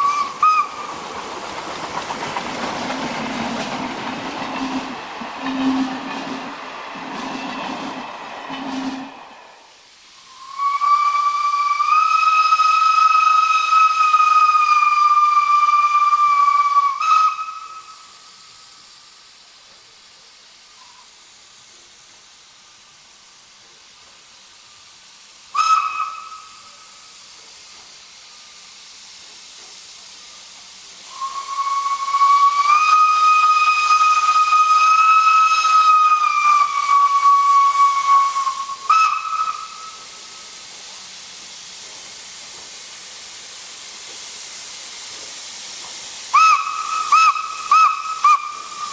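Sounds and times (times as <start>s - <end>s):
steam whistle blasts: 0.0s - 0.9s, 4.6s - 6.1s, 8.5s - 9.2s, 10.2s - 18.7s, 25.5s - 27.1s, 31.1s - 40.5s, 46.3s - 48.9s
steam hissing: 0.0s - 48.9s.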